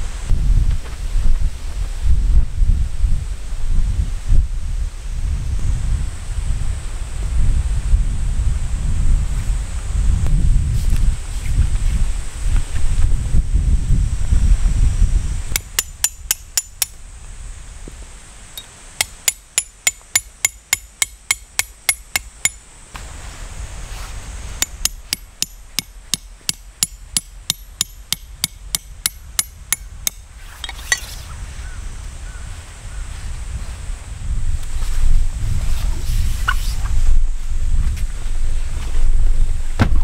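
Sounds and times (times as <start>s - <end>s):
wind buffeting microphone: 0.0s - 18.2s, 23.4s - 40.0s
hammer striking metal stake: 15.5s - 17.0s, 18.6s - 22.6s, 24.6s - 31.1s.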